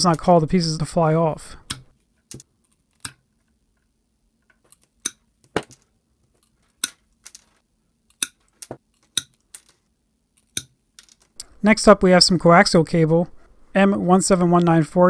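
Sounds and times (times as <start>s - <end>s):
pliers snipping wire: 8.1s - 9.3s.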